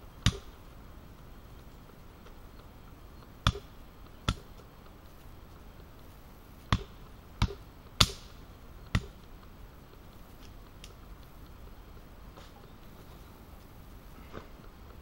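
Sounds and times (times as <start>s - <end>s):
hatchet chopping a branch: 3.4s - 3.7s, 4.3s - 4.5s, 6.7s - 9.2s.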